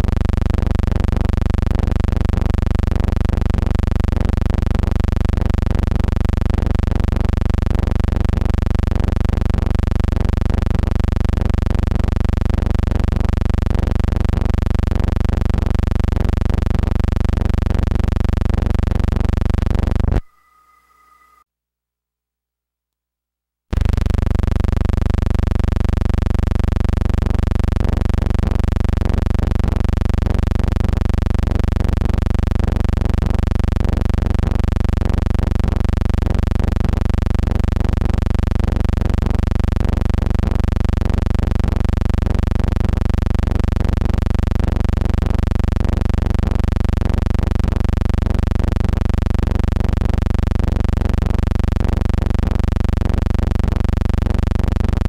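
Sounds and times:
loud low hum: 23.7 - 30.4.

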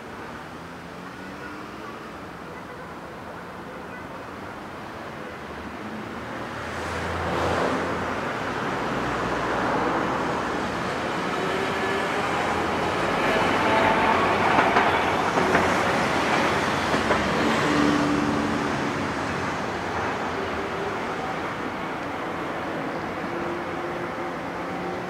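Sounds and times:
streetcars running on tracks: 0.0 - 25.0
cars driving past: 6.1 - 14.4.

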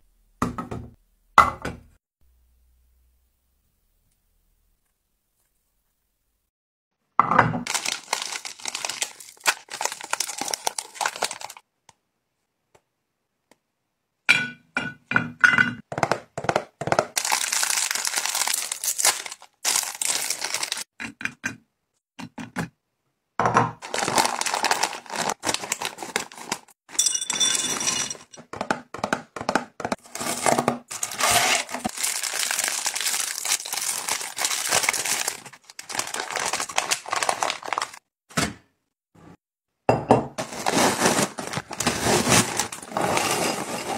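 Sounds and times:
packaging crinkling: 7.6 - 11.6, 17.2 - 20.9, 23.8 - 26.8, 30.1 - 38.0, 40.4 - 43.2.

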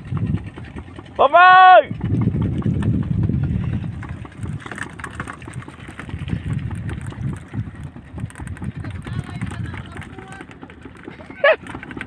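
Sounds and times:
low wind rumble: 0.0 - 12.0.

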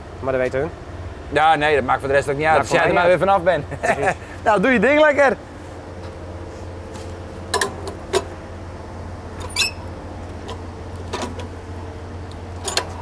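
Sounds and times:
steady low hum: 0.0 - 13.0
squeaky scrape: 9.4 - 9.9.

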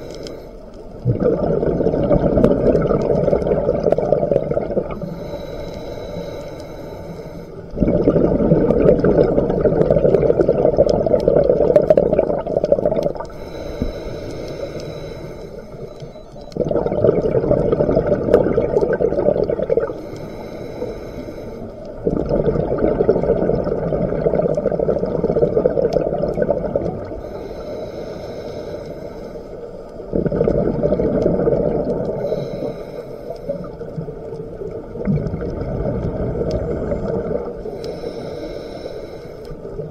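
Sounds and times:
regulator inhale hiss: 0.0 - 1.0, 4.8 - 7.8, 13.2 - 16.5, 19.8 - 22.0, 27.0 - 30.1, 32.0 - 34.0, 36.4 - 39.9
exhaled bubbles rushing: 1.0 - 5.0, 7.8 - 13.4, 16.5 - 20.0, 22.0 - 27.2, 30.1 - 32.4, 33.5 - 37.7.

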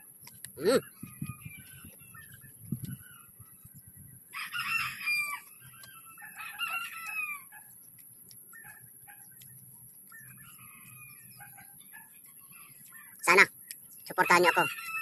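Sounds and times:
rooster crowing: 4.3 - 7.5, 14.1 - 15.0.

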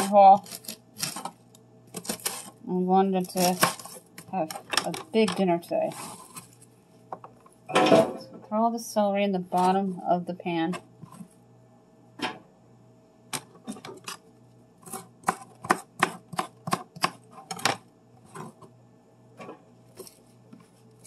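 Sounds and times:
knife chopping on cutting board: 14.8 - 17.7.

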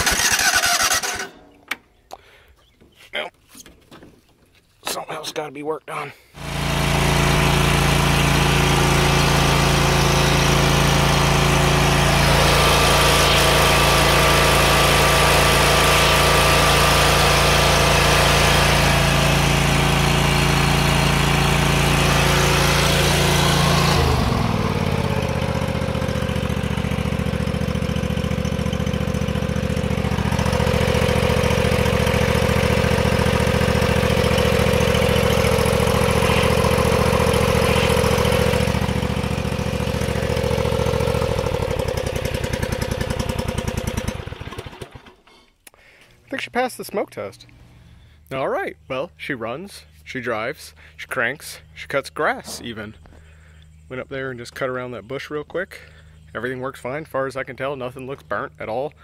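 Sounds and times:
lawn tractor engine running: 0.0 - 1.8, 6.4 - 45.4.

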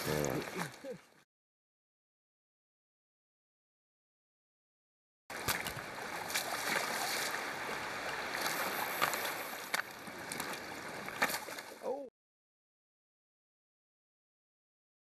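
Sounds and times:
river current rushing: 5.3 - 11.8.

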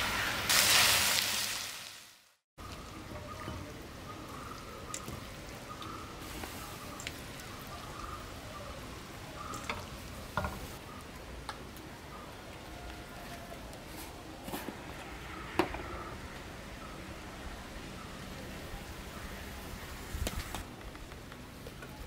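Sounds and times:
frying sizzle: 0.0 - 13.0.

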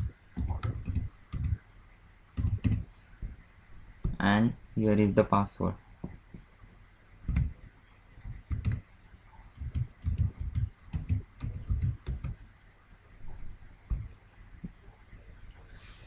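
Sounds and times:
computer keyboard typing: 0.4 - 1.6, 2.4 - 2.9, 7.3 - 7.6, 8.2 - 8.8, 9.6 - 12.4.

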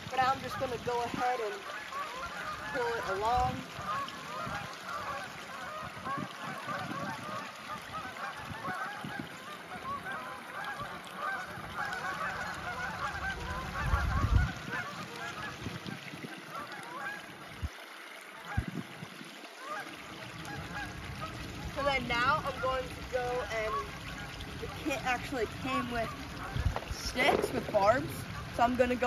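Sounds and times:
flock of birds calling: 0.0 - 15.6.

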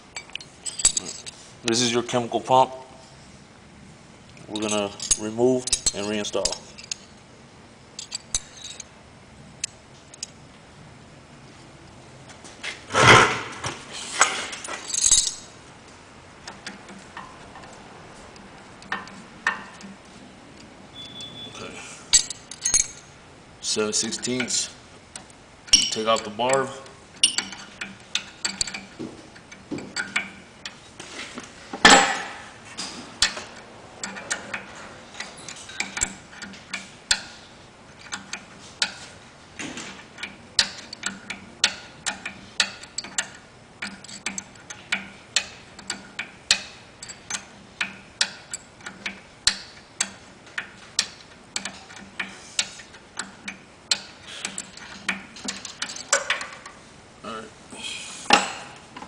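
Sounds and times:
metal clunk: 12.9 - 15.4, 25.7 - 26.2, 31.8 - 37.4
ratchet wrench clicking: 27.2 - 28.9, 33.2 - 37.4, 40.2 - 56.8.

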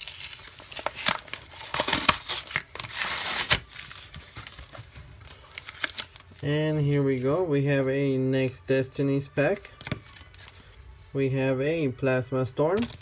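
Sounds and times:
plastic packaging crinkling: 0.0 - 6.5.

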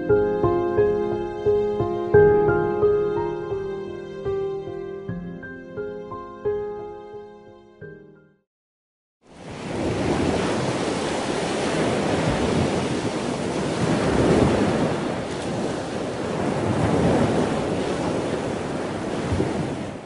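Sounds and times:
ocean waves washing in: 9.2 - 20.0.

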